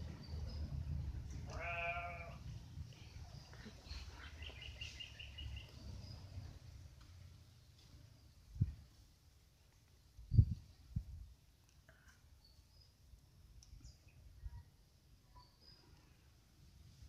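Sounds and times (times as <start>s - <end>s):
lamb bleating: 1.5s - 2.4s.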